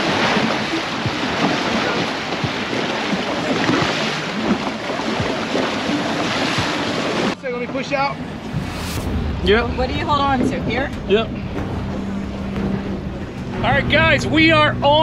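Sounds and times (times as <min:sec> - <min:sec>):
water churning and splashing: 0:00.0 - 0:13.6
wind buffeting microphone: 0:05.1 - 0:13.5
low engine hum: 0:08.1 - 0:14.9.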